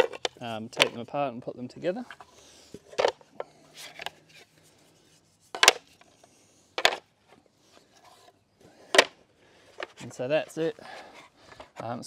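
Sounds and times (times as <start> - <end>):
plywood pieces knocking together: 0.0 - 1.0, 5.6 - 5.9, 6.8 - 7.0, 8.9 - 9.2.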